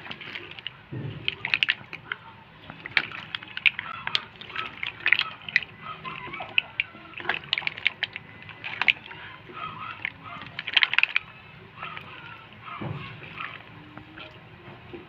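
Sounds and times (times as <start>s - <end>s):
sauce sloshing: 0.0s - 15.0s.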